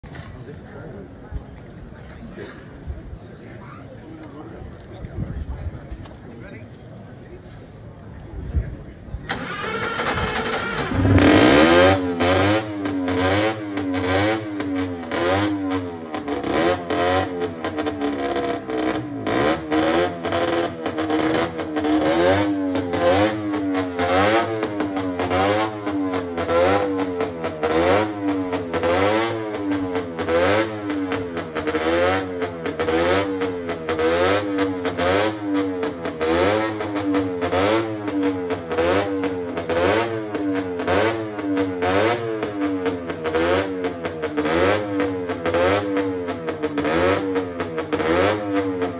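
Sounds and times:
roller starter: 9.3s - 13.2s
motorcycle engine revving: 9.3s - 48.9s.

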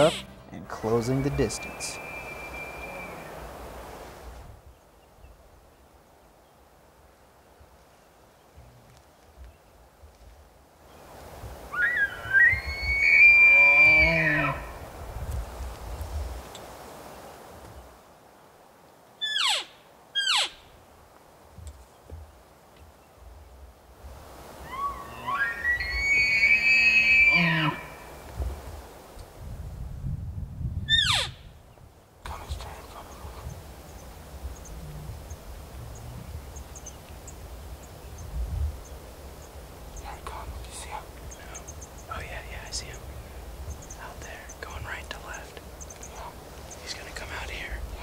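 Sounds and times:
elk calls: 0.0s - 3.5s, 11.7s - 14.8s, 19.2s - 20.6s, 24.6s - 28.2s, 30.9s - 31.3s
light wind on microphone: 8.5s - 17.9s, 23.4s - 48.0s.

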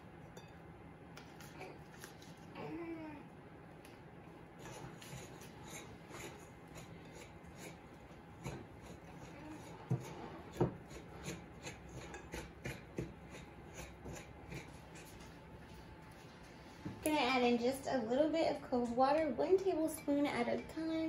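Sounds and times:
spoon scraping dough in glass bowl: 4.6s - 15.4s.

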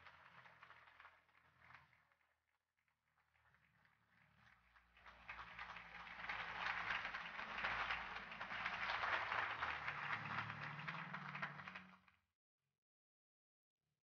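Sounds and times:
audience applause: 0.0s - 2.1s, 3.2s - 12.1s.

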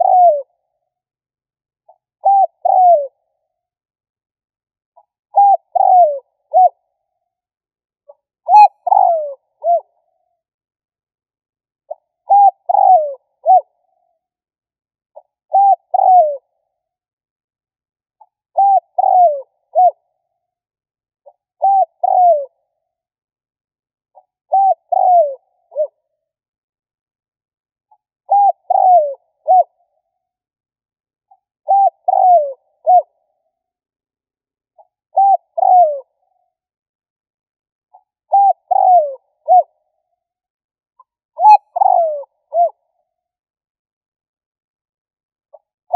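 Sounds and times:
dove cooing: 0.0s - 0.5s, 2.2s - 3.2s, 5.3s - 6.8s, 8.5s - 9.9s, 11.9s - 13.7s, 15.5s - 16.4s, 18.6s - 20.0s, 21.6s - 22.5s, 24.5s - 26.0s, 28.3s - 29.7s, 31.7s - 33.1s, 35.2s - 36.2s, 38.3s - 39.7s, 41.4s - 42.8s.

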